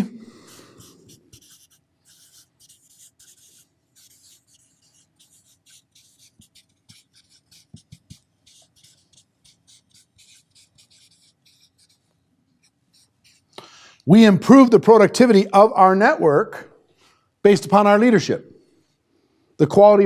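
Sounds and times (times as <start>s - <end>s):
marker scratching on whiteboard: 0.0s - 13.6s.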